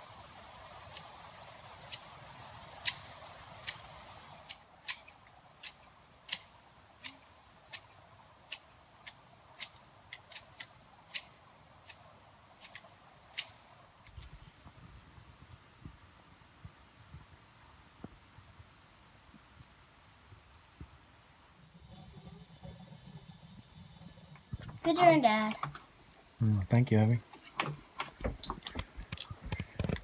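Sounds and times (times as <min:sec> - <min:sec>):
faint hiss: 0:00.0 - 0:30.0
sharp irregular clicks: 0:08.5 - 0:12.0.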